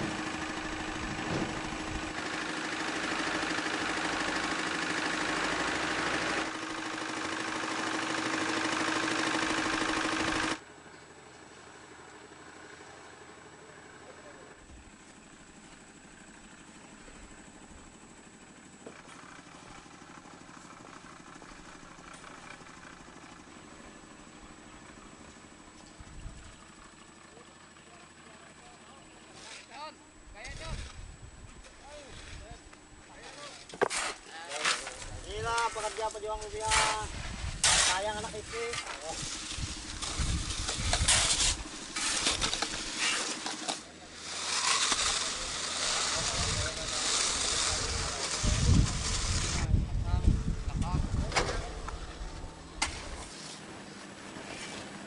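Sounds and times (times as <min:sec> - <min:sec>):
small engine idling: 0:00.0 - 0:55.0
shovels scraping gravel: 0:29.2 - 0:49.7, 0:52.8 - 0:55.0.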